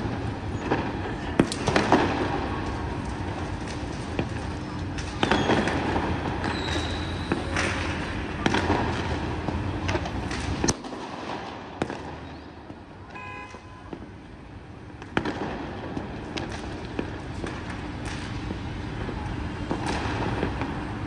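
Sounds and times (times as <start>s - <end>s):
fireworks bangs and cracks: 0.0s - 21.0s.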